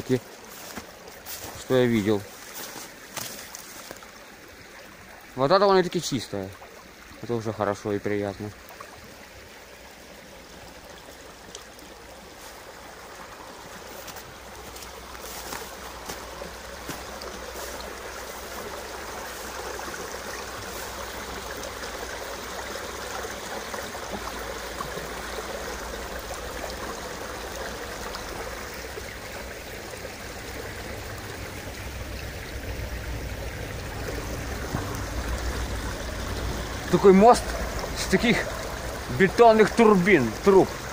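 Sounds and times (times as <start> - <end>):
river water rushing and splashing: 0.0 - 40.9
low rumble: 30.9 - 39.2.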